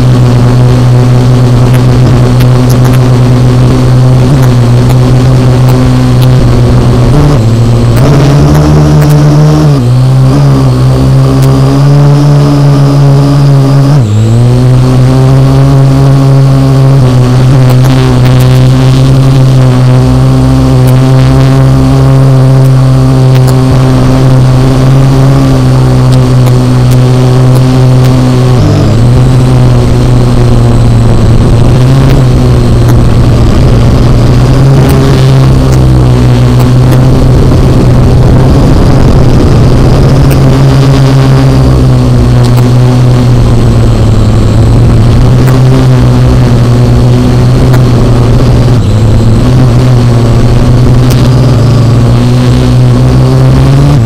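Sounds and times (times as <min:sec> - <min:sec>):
drone propellers whirring: 0:00.0 - 0:54.0.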